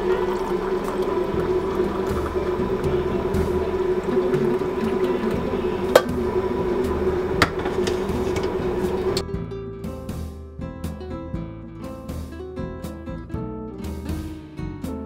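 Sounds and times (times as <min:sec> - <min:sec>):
coffee pouring into a mug: 0:00.0 - 0:09.2
glass carafe clinking: 0:00.1 - 0:06.4, 0:07.4 - 0:09.2.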